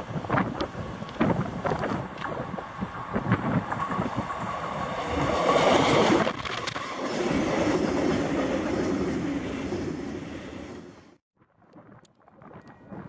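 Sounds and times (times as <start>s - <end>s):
diesel locomotive passing: 0.0s - 11.2s
wagons clattering over rails: 1.2s - 9.3s.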